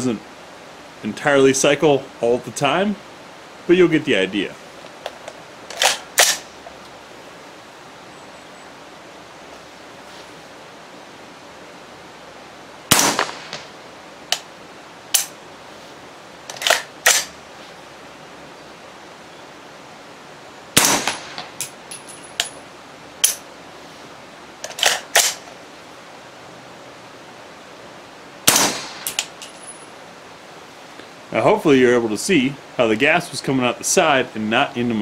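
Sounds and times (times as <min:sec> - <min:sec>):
suppressed rifle shots: 0:05.7 - 0:06.5, 0:12.9 - 0:13.8, 0:20.8 - 0:21.8, 0:28.4 - 0:29.4
faint sharp cracks: 0:12.9 - 0:14.5, 0:28.5 - 0:29.8.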